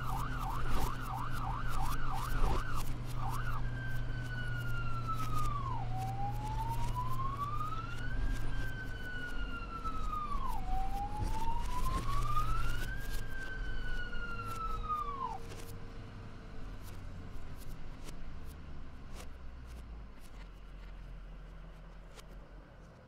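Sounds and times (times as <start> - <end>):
ambulance siren wailing: 0.0 - 15.7
low steady hum: 0.0 - 23.0.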